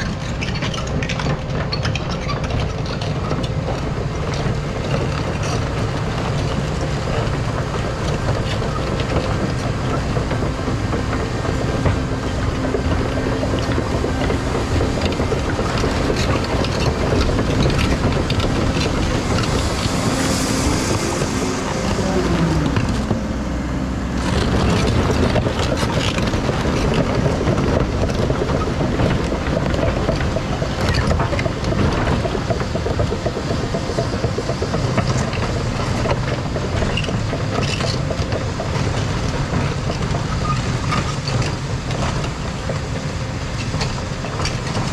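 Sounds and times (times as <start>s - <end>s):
excavator engine and hydraulics: 0.0s - 44.9s.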